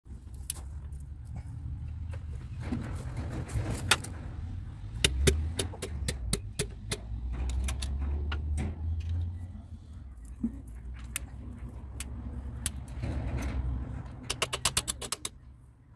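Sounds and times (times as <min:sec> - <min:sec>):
metallic clicks of hand tools: 0:05.0 - 0:09.2, 0:14.2 - 0:15.4.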